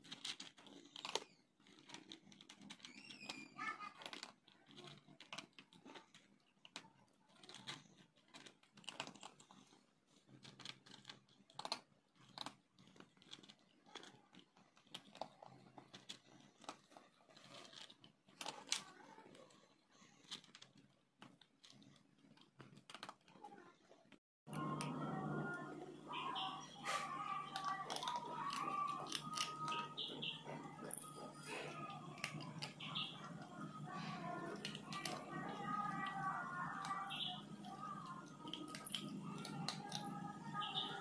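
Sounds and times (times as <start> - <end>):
cat crunching dry kibble: 0.0 - 40.6.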